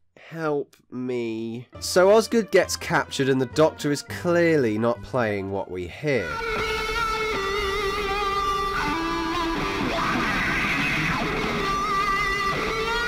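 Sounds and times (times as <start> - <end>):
electric guitar lead with vibrato: 6.2 - 13.0.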